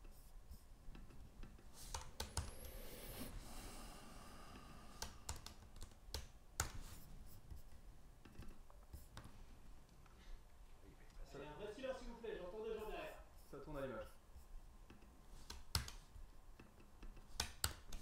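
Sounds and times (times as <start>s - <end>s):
keyboard typing: 0.9s - 3.2s, 4.9s - 7.6s, 14.9s - 18.0s.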